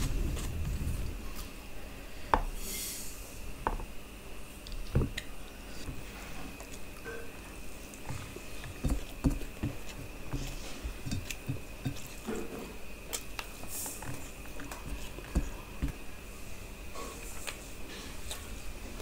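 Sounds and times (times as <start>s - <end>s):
chewing and wet mouth sounds: 13.0s - 16.0s.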